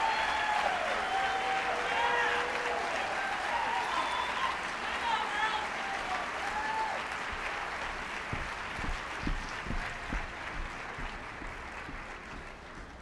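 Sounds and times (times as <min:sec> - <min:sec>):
audience applause: 0:00.0 - 0:13.0
footsteps on stage floor: 0:07.2 - 0:13.0.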